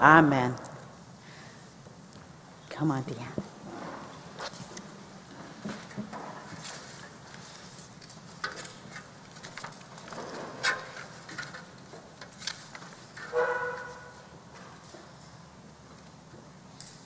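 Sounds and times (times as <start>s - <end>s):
knocks and rustles of people settling: 3.2s - 17.0s.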